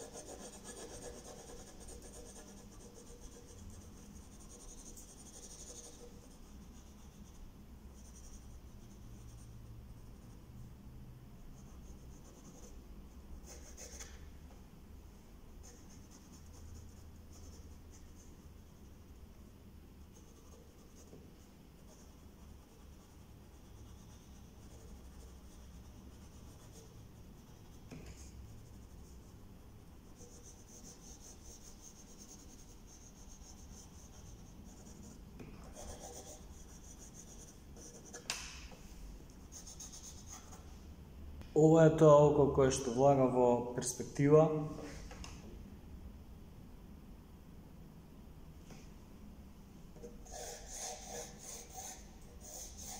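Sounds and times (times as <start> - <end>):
pencil scratching on paper: 0.0 - 9.6, 13.4 - 14.2, 21.8 - 29.4, 30.0 - 38.4, 39.4 - 40.7, 50.0 - 52.9
low steady hum: 0.0 - 52.9.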